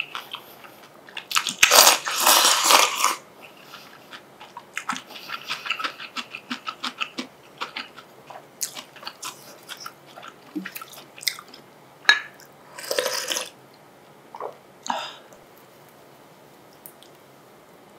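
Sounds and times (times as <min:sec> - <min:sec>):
close chewing with mouth clicks: 0:00.0 - 0:11.6.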